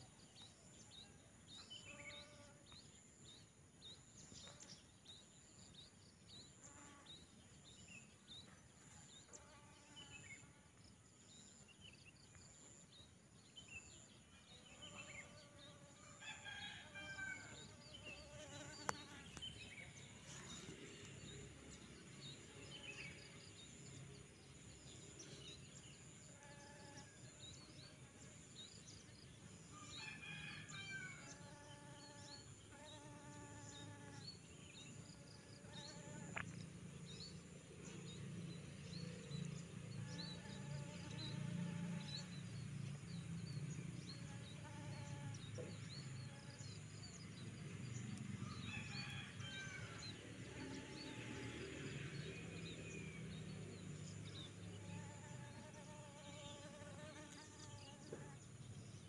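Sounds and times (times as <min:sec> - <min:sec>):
distant rooster crowing: 0:16.1 - 0:17.7, 0:29.8 - 0:31.3, 0:48.4 - 0:50.1
small birds chirping: 0:17.9 - 0:24.2.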